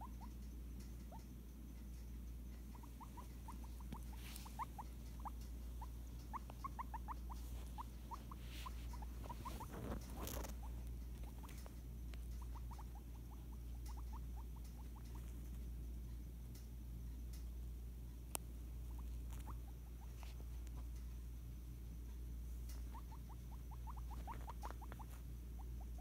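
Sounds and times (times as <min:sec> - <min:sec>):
guinea pig squeaking: 0:00.0 - 0:15.8, 0:17.2 - 0:26.0
handling rustle: 0:07.3 - 0:11.8.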